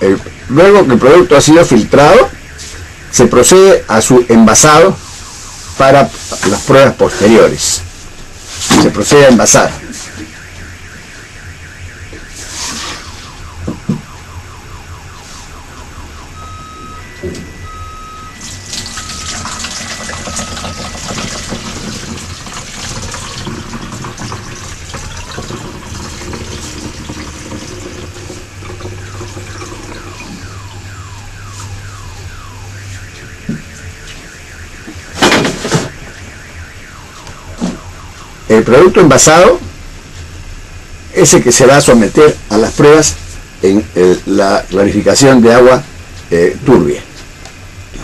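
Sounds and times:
alarm siren wailing: 0:00.0 - 0:47.9
two-pitch alternating beeps: 0:09.4 - 0:22.4, 0:28.8 - 0:35.2
liquid pouring into container: 0:18.4 - 0:30.3.

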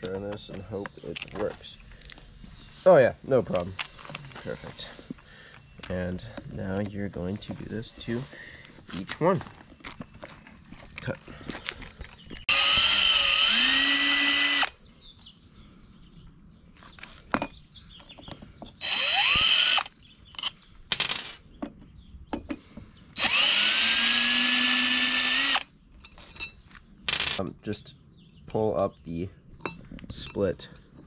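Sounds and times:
cordless drill motor whine: 0:12.4 - 0:14.7, 0:18.8 - 0:19.9, 0:23.2 - 0:25.7
small clicks of screws and bit: 0:18.1 - 0:21.3.

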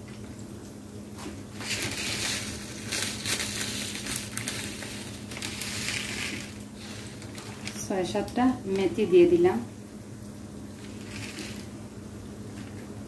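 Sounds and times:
onions sizzling in hot oil: 0:01.6 - 0:08.5, 0:10.4 - 0:11.8.

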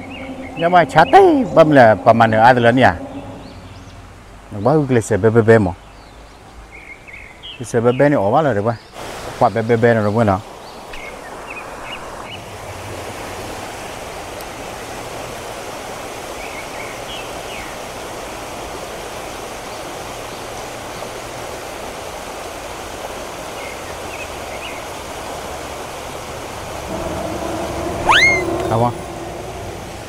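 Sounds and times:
creek water rushing over rocks: 0:09.0 - 0:26.9.

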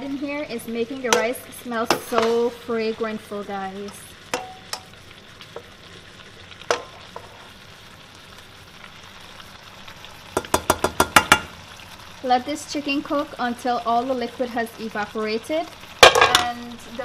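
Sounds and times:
chicken sizzling in a frying pan: 0:00.0 - 0:17.0
spatula clacking against pan: 0:10.4 - 0:11.6.

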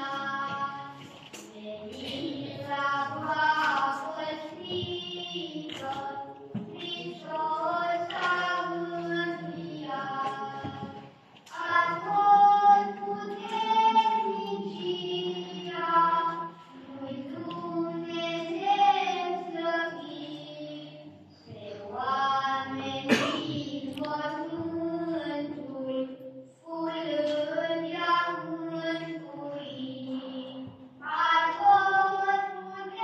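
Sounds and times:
voices chanting together: 0:00.0 - 0:26.0.

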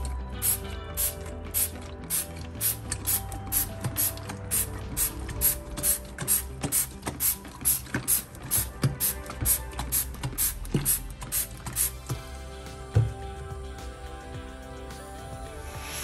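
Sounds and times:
background music: 0:00.0 - 0:16.0
spray bottle hissing sprays: 0:00.4 - 0:12.0.

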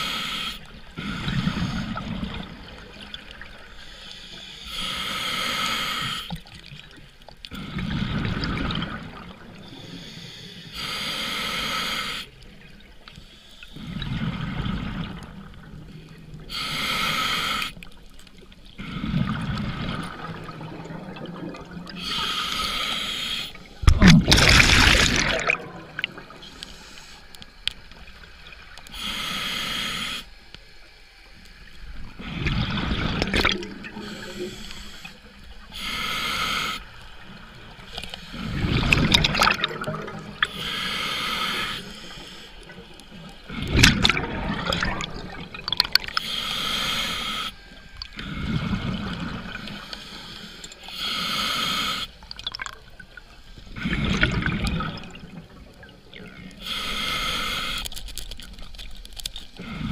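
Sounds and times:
regulator hissing inhalation: 0:00.0 - 0:02.0, 0:03.8 - 0:06.4, 0:09.8 - 0:12.4, 0:16.5 - 0:17.9, 0:22.0 - 0:23.8, 0:26.0 - 0:27.8, 0:28.9 - 0:30.4, 0:33.4 - 0:37.2, 0:40.4 - 0:43.6, 0:46.0 - 0:48.7, 0:49.6 - 0:52.2, 0:56.5 - 0:58.2
rumble of exhaled bubbles: 0:19.0 - 0:22.0, 0:23.8 - 0:26.5, 0:32.1 - 0:34.2, 0:38.4 - 0:40.6, 0:43.5 - 0:46.2, 0:52.3 - 0:56.6.

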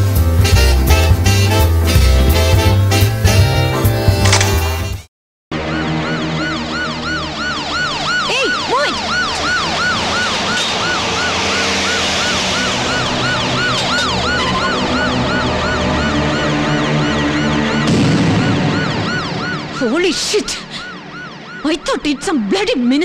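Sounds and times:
vehicle siren wailing: 0:05.5 - 0:23.0.

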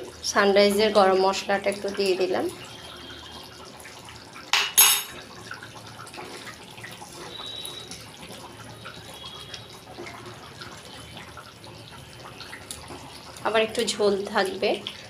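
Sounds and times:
gravy sloshing and bubbling: 0:05.1 - 0:15.0.

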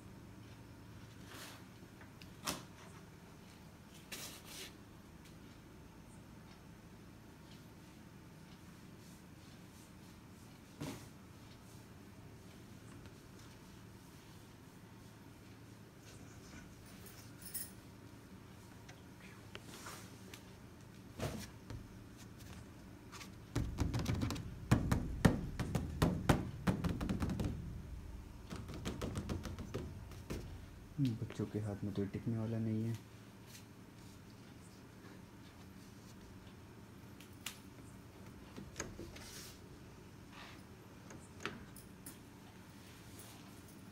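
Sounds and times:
low room hum: 0:00.0 - 0:43.9
soft brushing: 0:19.4 - 0:20.6, 0:21.3 - 0:23.5
plastic panel knocking against frame: 0:23.5 - 0:27.8, 0:28.4 - 0:30.6.

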